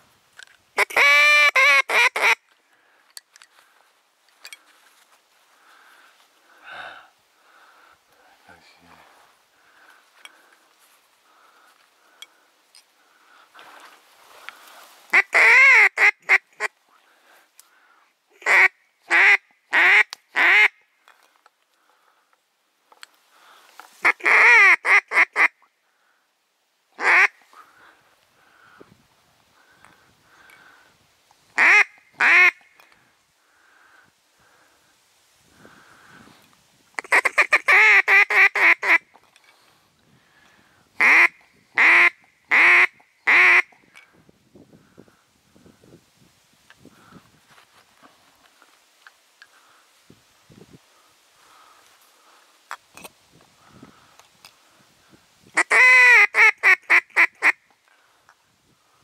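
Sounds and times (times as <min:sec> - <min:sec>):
duck quacking: 0:41.0 - 0:43.7.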